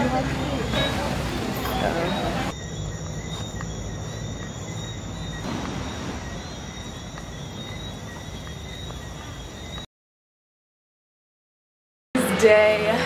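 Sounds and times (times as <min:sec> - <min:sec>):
crickets trilling: 0:00.1 - 0:09.9.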